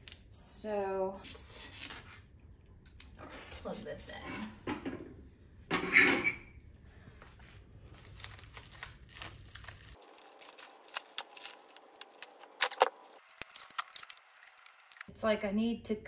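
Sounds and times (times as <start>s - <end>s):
plastic wrapping crinkling and tearing: 7.8s - 15.1s.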